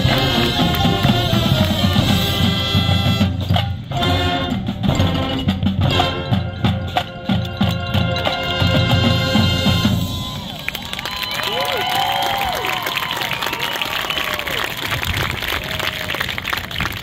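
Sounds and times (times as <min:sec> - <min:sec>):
brass and woodwind chords: 0:00.0 - 0:10.5
marching band playing: 0:00.0 - 0:12.0
drumline percussion: 0:00.0 - 0:17.0.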